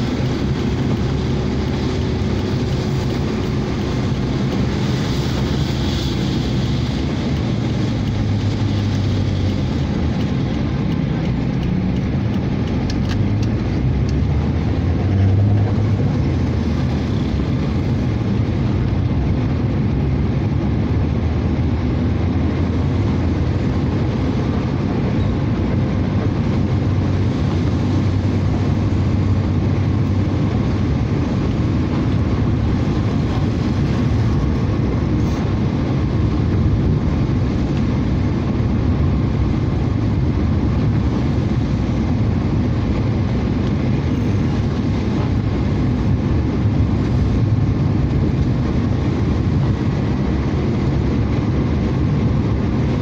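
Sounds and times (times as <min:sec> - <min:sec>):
car engine running: 0:00.0 - 0:53.0
tyres on wet road: 0:00.0 - 0:53.0.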